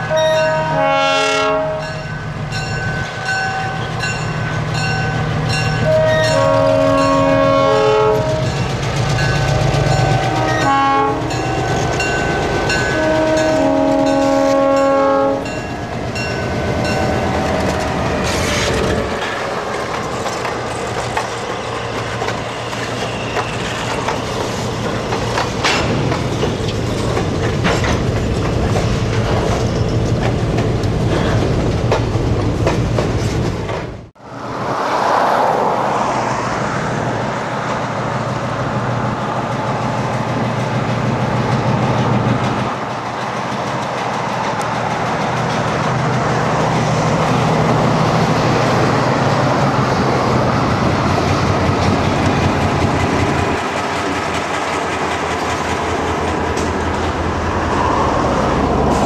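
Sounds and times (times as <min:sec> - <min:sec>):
locomotive air horn blasts: 0:00.0 - 0:02.0, 0:05.8 - 0:08.6, 0:10.0 - 0:15.6
train engine rumble: 0:00.0 - 0:59.0
wheels clicking over rail joints: 0:15.5 - 0:34.0.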